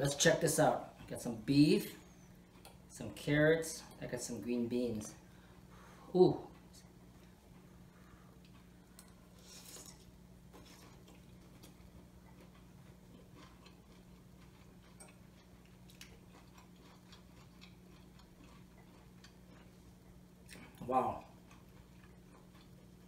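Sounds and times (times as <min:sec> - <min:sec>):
low steady hum: 0:00.0 - 0:23.0
man chewing: 0:02.1 - 0:02.9, 0:05.4 - 0:23.0.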